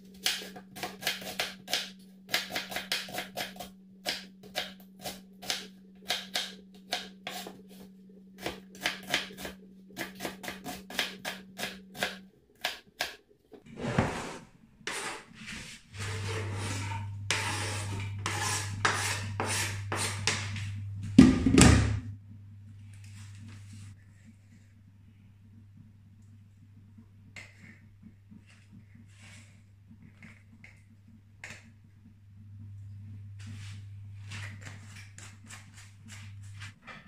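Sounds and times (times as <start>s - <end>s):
spoon scraping metal pot: 13.8s - 20.6s.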